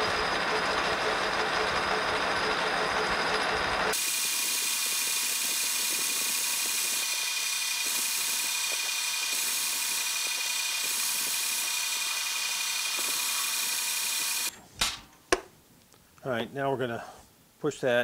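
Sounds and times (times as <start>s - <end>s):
metal lathe whining: 0.0s - 14.5s
hiss of cutting: 3.9s - 14.5s.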